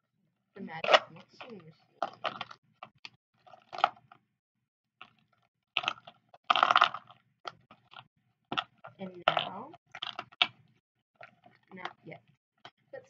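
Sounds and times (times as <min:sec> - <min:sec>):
slime squishing: 0:05.0 - 0:12.2.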